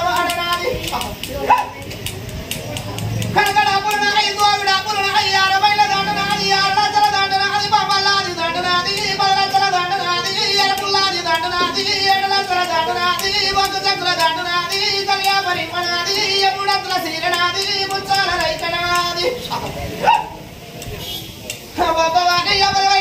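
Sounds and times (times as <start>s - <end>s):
faint ticking: 0.0s - 19.6s
high voice singing: 0.0s - 20.4s, 21.6s - 23.0s.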